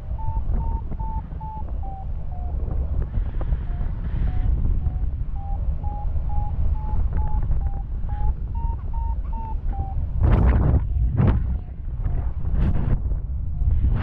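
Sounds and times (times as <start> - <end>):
variometer beeping: 0.0 - 12.2
wind noise on microphone: 0.0 - 14.0.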